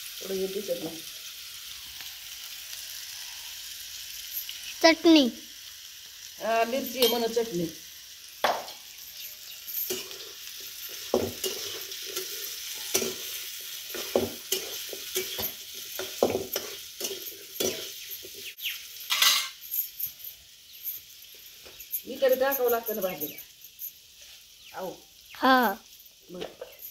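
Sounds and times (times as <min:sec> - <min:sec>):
potatoes sizzling in oil: 0:00.0 - 0:26.9
metal spoon scraping pan: 0:06.9 - 0:07.5, 0:08.4 - 0:18.4, 0:19.0 - 0:20.0.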